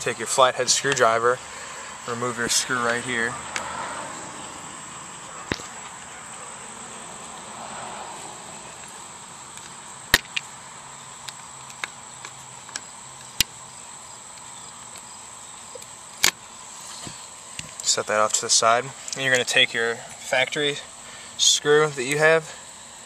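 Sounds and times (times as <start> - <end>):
steady hiss: 0.0 - 23.0.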